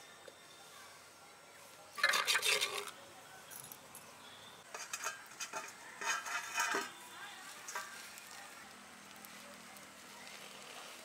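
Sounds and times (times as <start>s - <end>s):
leafy greens rustling: 4.7s - 11.0s
light clinking on steel bowl: 4.8s - 7.0s.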